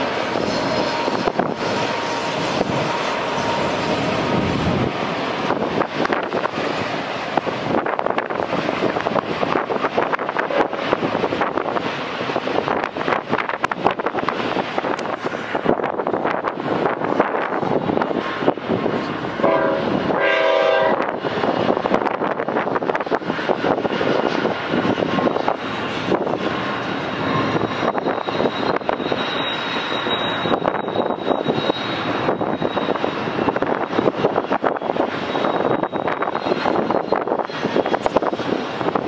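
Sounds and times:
freight locomotives rumbling past: 0.0 - 39.0
train horn blast: 19.4 - 21.2.

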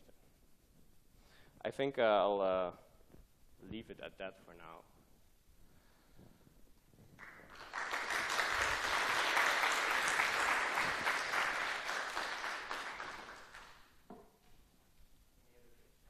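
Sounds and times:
audience applauding: 7.2 - 14.0.

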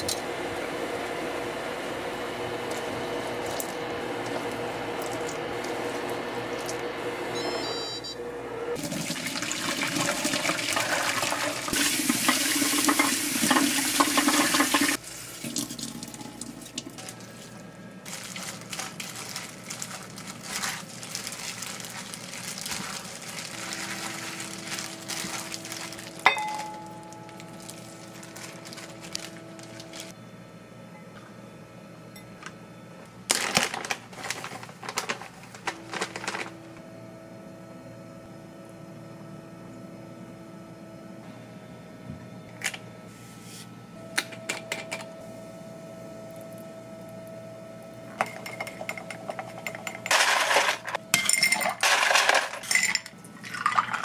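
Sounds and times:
pot of noodles boiling: 8.8 - 17.1
clicks and handling noises: 33.3 - 36.6.

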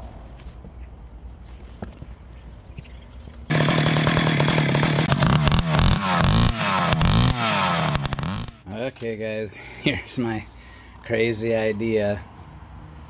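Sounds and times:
chainsaw running and revving: 3.5 - 8.6.

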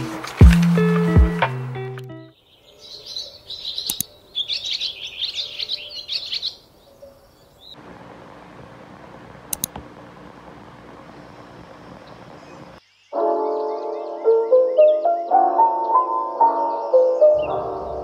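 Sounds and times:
birds chirping: 0.0 - 18.0
double click: 3.9 - 4.1, 9.5 - 9.8
sharp click: 3.9 - 4.1, 9.5 - 9.9
faint hum: 7.8 - 12.8.

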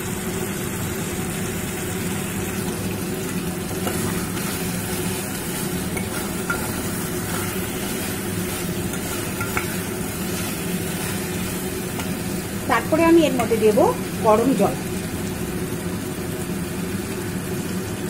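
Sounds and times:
food sizzling in oil: 0.0 - 18.0
spatula stirring and scraping: 3.1 - 12.7
spatula clinking on pot: 5.8 - 11.2.

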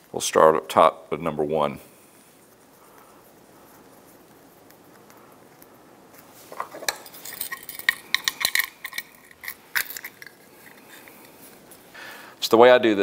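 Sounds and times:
metallic clicks of gauge fittings: 6.8 - 11.4.

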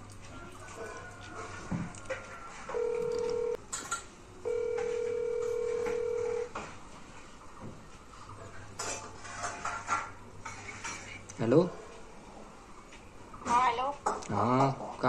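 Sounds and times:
phone ringback tone beeps: 2.7 - 3.6, 4.5 - 6.5.

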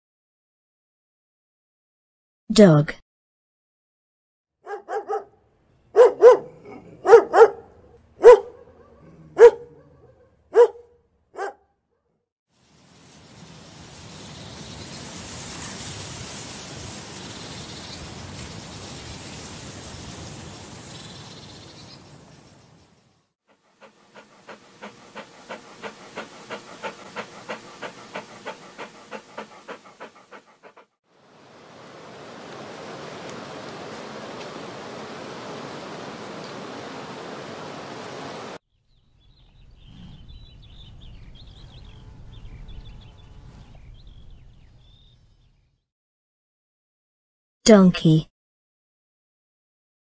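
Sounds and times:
dog barking: 4.6 - 12.2
dog panting: 23.5 - 31.0.

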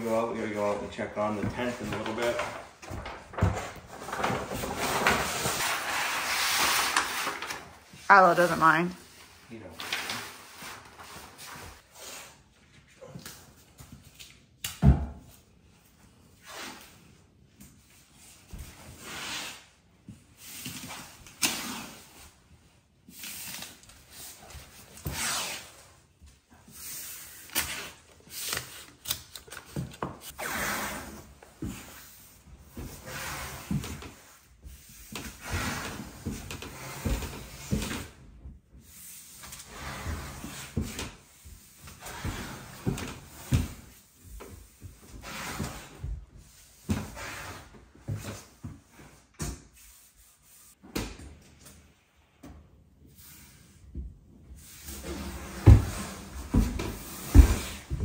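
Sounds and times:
tape tearing off roll: 4.5 - 7.8.

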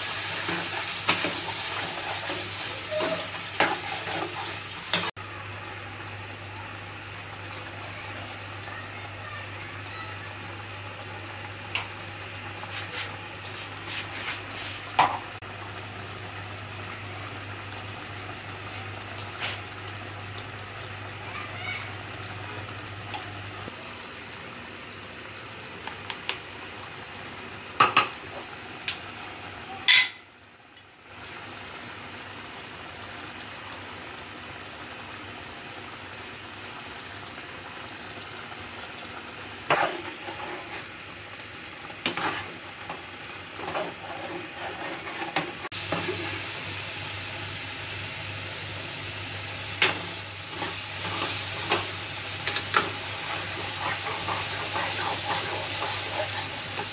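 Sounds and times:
curry sizzling in a pan: 0.0 - 56.9
spoon scraping a pan: 39.7 - 40.9, 42.0 - 43.0, 43.6 - 46.3, 49.8 - 56.9.

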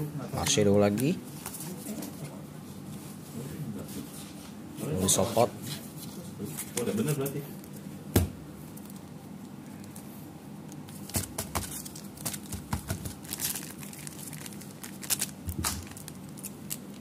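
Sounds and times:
foil wrappers crinkling: 10.7 - 17.0.

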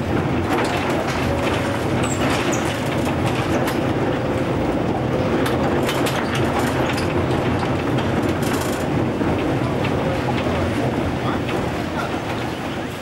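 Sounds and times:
tram wheels rumbling on rail: 0.0 - 13.0
clicks and rattles: 5.4 - 12.6.

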